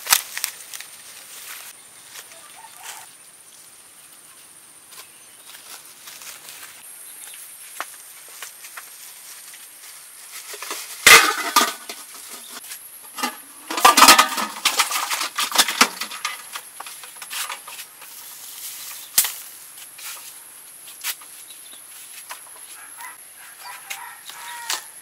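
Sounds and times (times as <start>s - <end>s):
metal pot and lid clattering: 10.6s - 17.7s.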